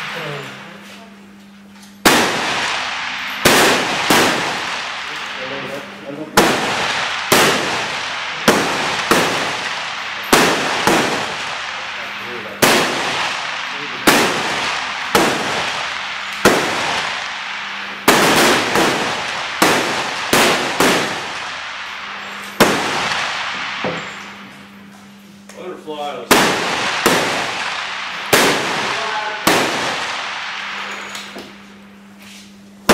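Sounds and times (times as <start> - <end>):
rifle shots echoing: 0.0 - 0.8, 2.0 - 24.9, 26.2 - 31.8.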